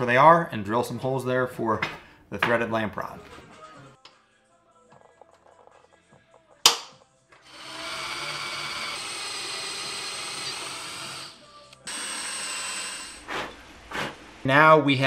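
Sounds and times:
center punch snapping on aluminum: 6.6s - 7.0s
cordless drill boring through aluminum: 7.4s - 13.3s.

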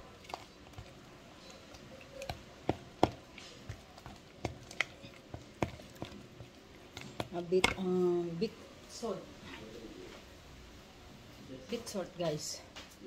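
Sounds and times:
kitchen things knocking: 2.2s - 7.9s.

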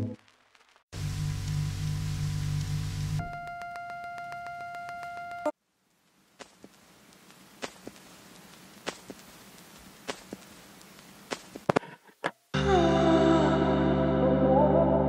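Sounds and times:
faint room hiss: 0.2s - 12.5s
footsteps on stone floor: 6.3s - 12.4s
background music: 12.6s - 15.0s.

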